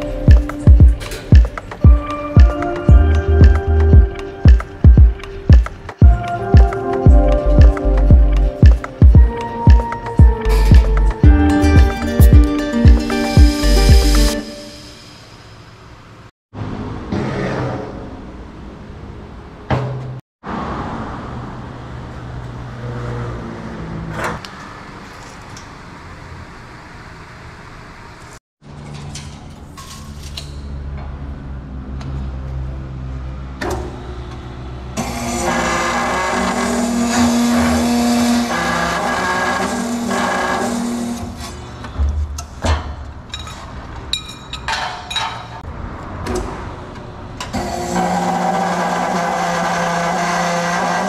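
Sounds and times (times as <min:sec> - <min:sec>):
background music: 0:00.0 - 0:15.2
cut-off saw motor running: 0:35.0 - 0:41.4, 0:47.6 - 0:51.0.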